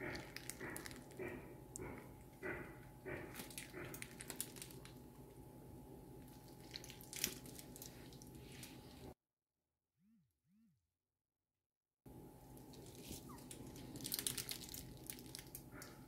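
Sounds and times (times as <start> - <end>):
steady low hum: 0.0 - 9.2.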